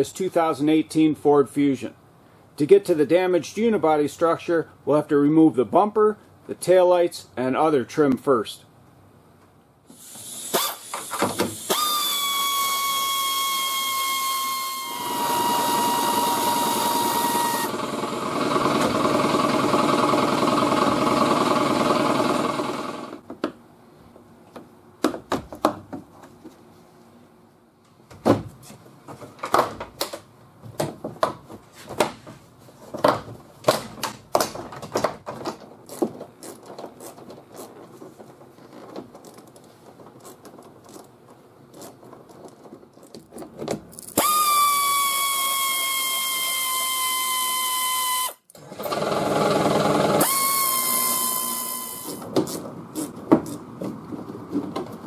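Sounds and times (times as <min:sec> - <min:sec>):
air ratchet whine: 0:09.9 - 0:23.2, 0:44.1 - 0:52.2.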